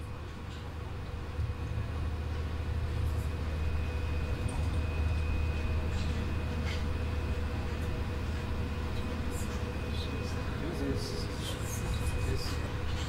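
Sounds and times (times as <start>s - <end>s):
faint whining tones: 0.0s - 13.0s
train rumbling on track: 0.0s - 13.0s.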